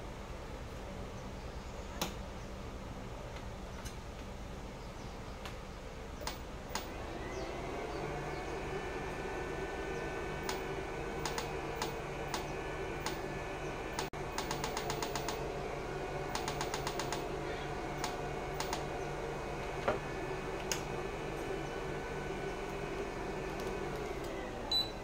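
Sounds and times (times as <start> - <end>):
steady low hum: 0.0 - 25.0
sharp clicks: 6.2 - 6.9, 11.2 - 13.2, 13.9 - 15.4, 16.3 - 17.3, 18.0 - 18.9.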